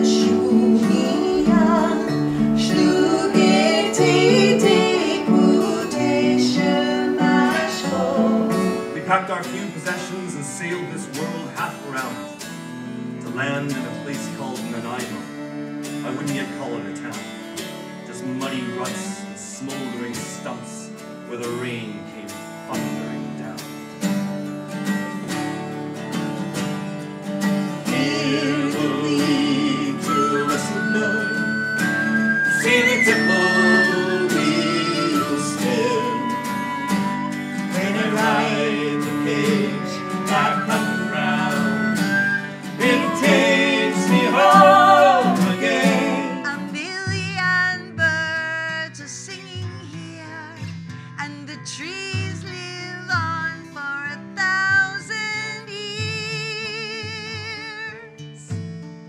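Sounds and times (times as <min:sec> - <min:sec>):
cello: 0:00.0 - 0:09.7, 0:27.2 - 0:46.8
lead melody: 0:00.0 - 0:12.0, 0:24.3 - 0:46.9
mandolin: 0:00.0 - 0:56.6
acoustic guitar: 0:00.0 - 0:59.0.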